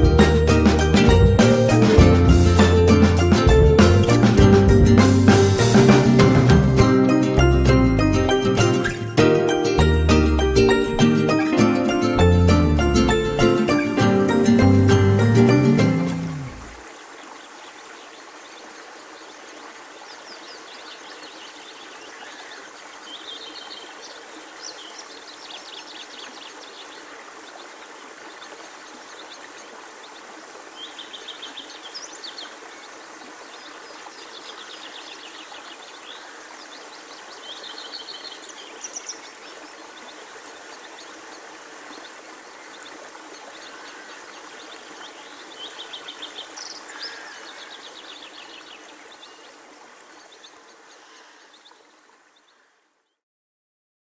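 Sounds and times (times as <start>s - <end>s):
outdoor background hiss: 0.0s - 53.2s
birds trilling: 45.6s - 48.2s.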